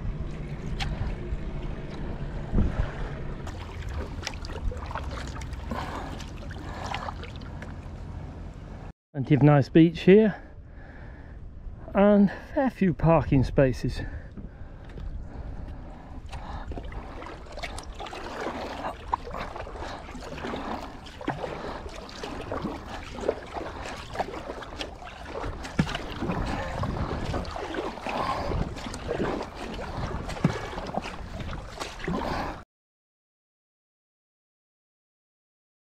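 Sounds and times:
wind rumble on microphone: 0.0s - 8.8s, 10.4s - 12.2s, 12.9s - 20.0s, 21.3s - 32.6s
paddle splashing water: 0.2s - 7.8s, 14.4s - 32.6s.

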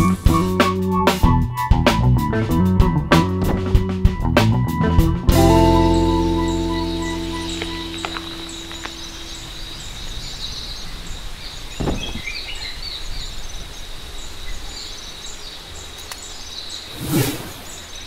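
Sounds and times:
small birds chirping: 5.4s - 18.0s
high insect drone: 5.7s - 11.1s.

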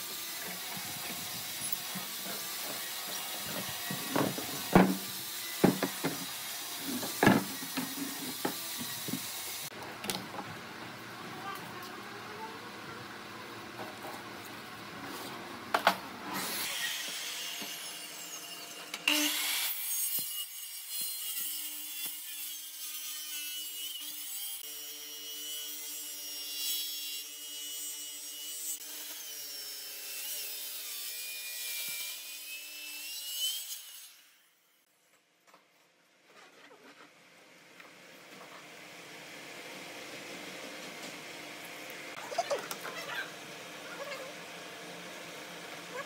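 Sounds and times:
circular saw cutting wood: 0.0s - 9.8s, 16.2s - 34.5s.

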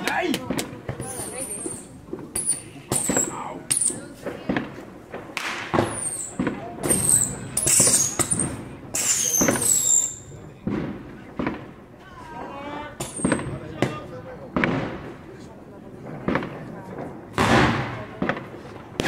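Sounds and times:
firework pops and cracks: 0.0s - 11.8s, 12.4s - 19.0s
whistling rockets: 0.6s - 4.7s, 5.3s - 11.6s, 13.0s - 15.4s.

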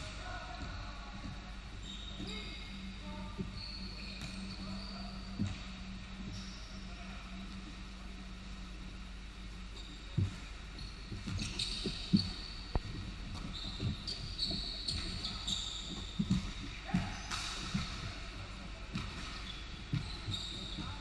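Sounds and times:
sneakers squeaking on floor: 0.0s - 7.7s, 9.7s - 21.0s
basketball bouncing on hardwood: 11.2s - 18.1s, 18.9s - 21.0s.

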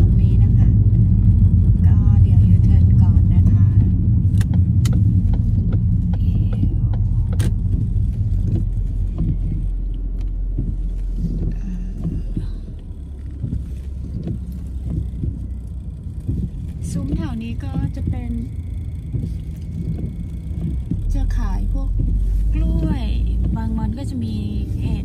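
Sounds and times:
car engine and tyre rumble: 0.0s - 25.0s
sharp clicks: 3.8s - 22.2s.

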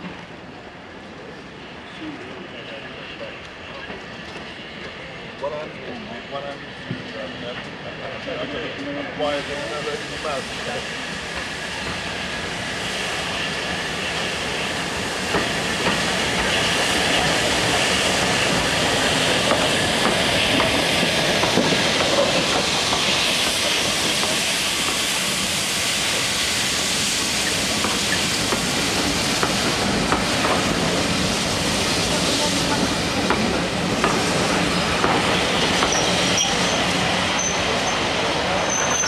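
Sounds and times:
steam train passing slowly: 0.0s - 39.0s
steam hissing: 9.0s - 39.0s.

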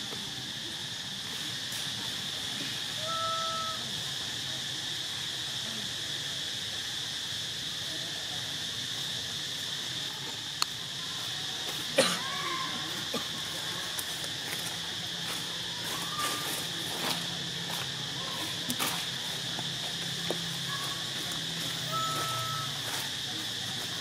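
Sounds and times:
high insect drone: 0.0s - 24.0s
short level call: 3.0s - 3.9s, 21.8s - 22.8s.

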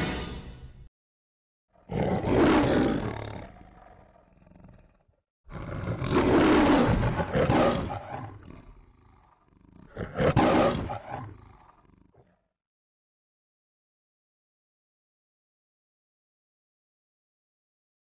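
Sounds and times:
lion roaring: 1.7s - 12.4s.

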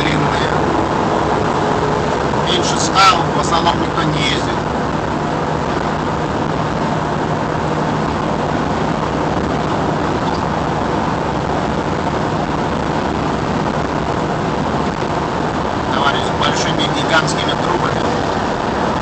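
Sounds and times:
car cabin road noise: 0.0s - 19.0s
low hum: 0.0s - 19.0s.

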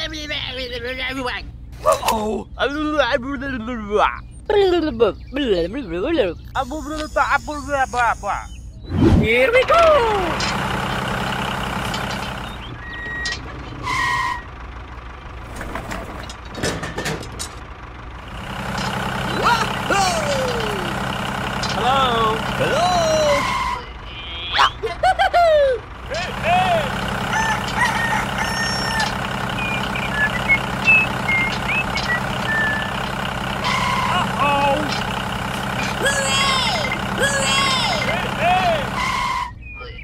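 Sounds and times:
tractor engine droning: 5.2s - 40.0s
toy engine hum: 25.9s - 39.5s
short electronic beeps: 28.6s - 34.2s.

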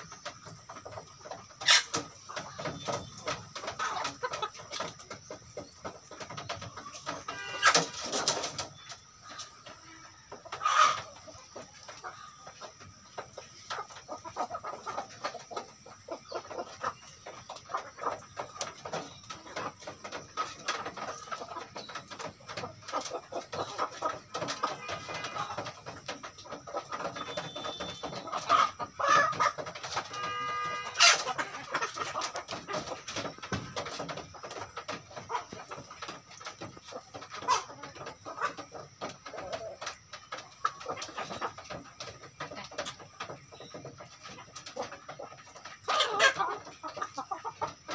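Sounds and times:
chickens clucking: 0.0s - 47.9s
chicken pitched call: 7.3s - 7.9s, 10.6s - 11.1s, 27.0s - 32.0s.

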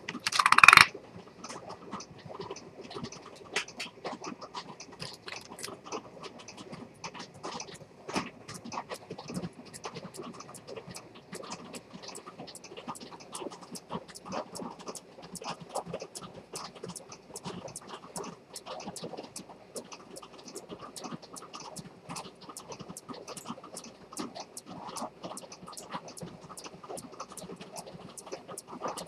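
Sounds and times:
pocket watch ticking: 0.0s - 0.9s, 20.9s - 29.0s.

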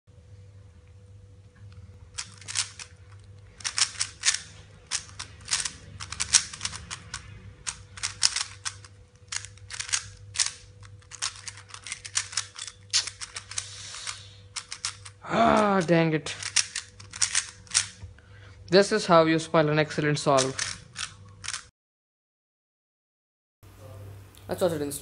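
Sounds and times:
puzzle cube clicking: 2.1s - 18.0s, 20.3s - 21.7s.

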